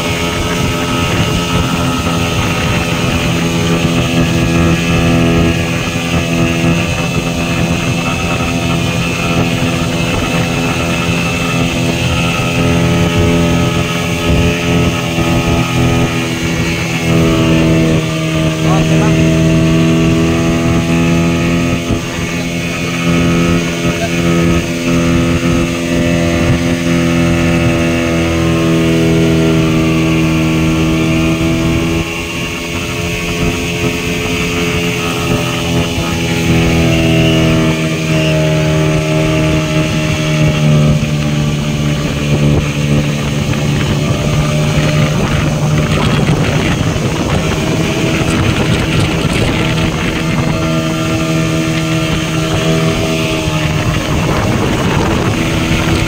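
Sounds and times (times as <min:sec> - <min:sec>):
motorboat engine running: 0:00.0 - 0:56.0
rush of wake and spray: 0:00.0 - 0:56.0.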